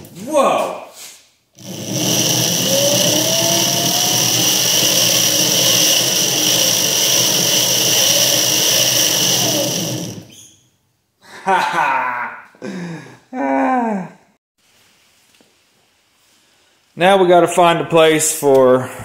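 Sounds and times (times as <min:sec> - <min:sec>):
electric motor whining: 0:01.6 - 0:10.4
loose drive chain spinning: 0:01.6 - 0:10.4.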